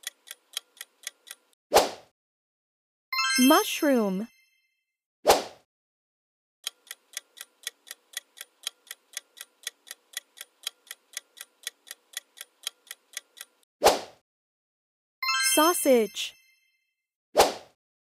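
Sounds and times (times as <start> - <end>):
clock-like timer ticking: 0.0 - 1.6, 6.6 - 13.7.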